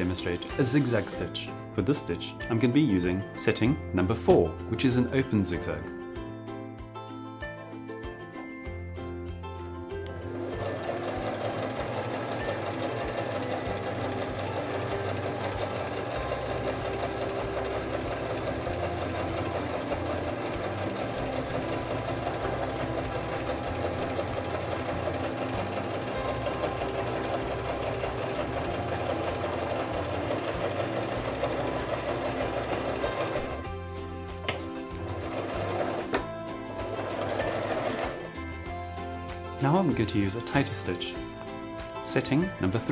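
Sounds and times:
electric sewing machine running: 0:10.0 - 0:33.9, 0:34.5 - 0:38.9
sewing machine clicks: 0:36.9 - 0:38.3.

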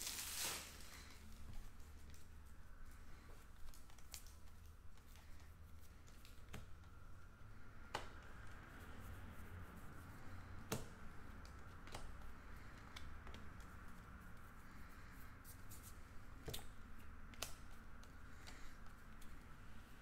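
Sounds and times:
low steady hum: 0:00.0 - 0:20.0
cards ticking against cards: 0:03.2 - 0:08.6, 0:10.2 - 0:15.1, 0:16.4 - 0:19.8.

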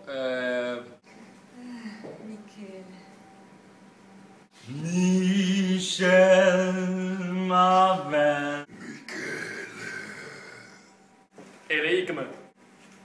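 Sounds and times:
man singing long held notes: 0:04.6 - 0:08.7.

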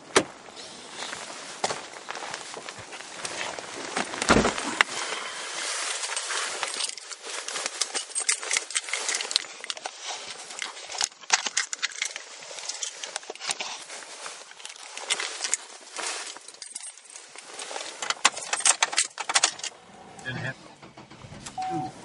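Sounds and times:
rustling: 0:00.6 - 0:22.0
heavy thump: 0:04.2 - 0:04.7.

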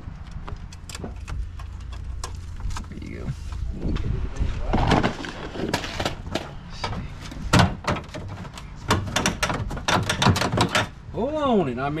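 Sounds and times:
plastic trim knocking and snapping: 0:07.5 - 0:10.9.

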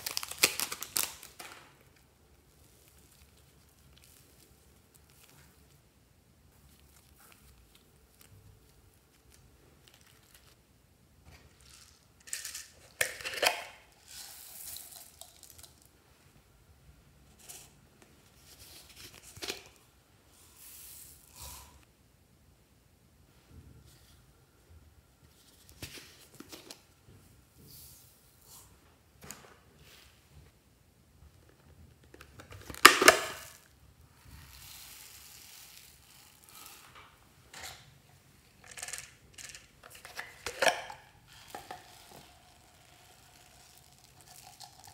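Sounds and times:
foam beads pouring: 0:14.0 - 0:15.8, 0:34.2 - 0:36.9, 0:41.3 - 0:44.9
containers clicking and knocking: 0:38.6 - 0:41.9.

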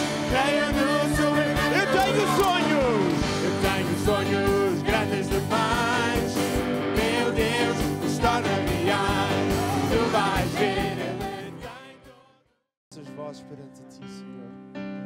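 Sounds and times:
steady drum beat: 0:00.0 - 0:11.5
band playing: 0:00.0 - 0:11.7
man singing into a microphone: 0:00.2 - 0:06.4.

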